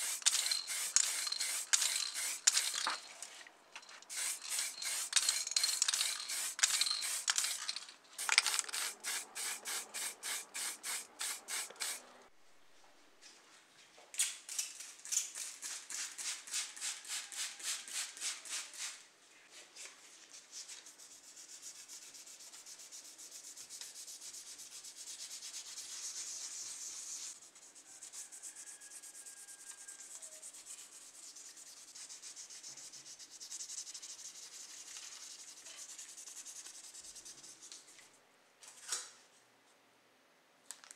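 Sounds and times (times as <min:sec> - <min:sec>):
rubbing on plastic model: 0:19.5 - 0:37.9.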